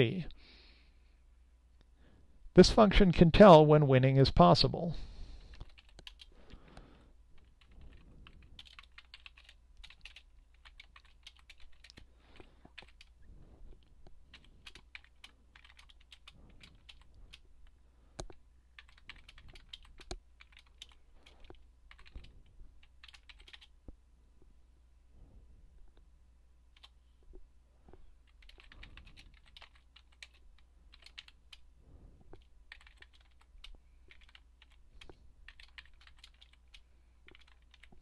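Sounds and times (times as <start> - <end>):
keyboard typing: 5.5 - 6.3, 7.4 - 13.2, 13.8 - 17.5, 18.2 - 23.8, 26.7 - 27.0, 28.2 - 31.6, 32.3 - 38.0.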